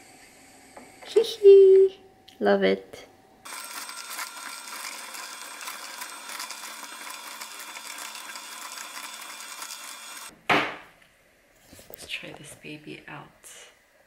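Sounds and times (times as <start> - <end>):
juicer crushing vegetables: 3.5 - 10.3.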